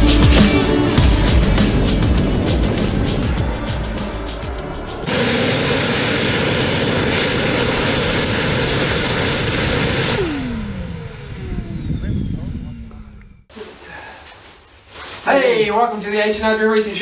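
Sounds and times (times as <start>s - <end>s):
background music with a beat: 0.0s - 5.1s
model jet turbine whine: 5.0s - 13.5s.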